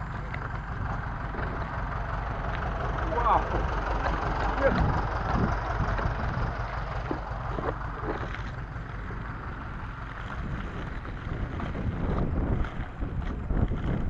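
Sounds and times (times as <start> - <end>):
skate wheels rolling on dirt: 0.0 - 14.0
wind buffeting microphone: 0.0 - 14.0.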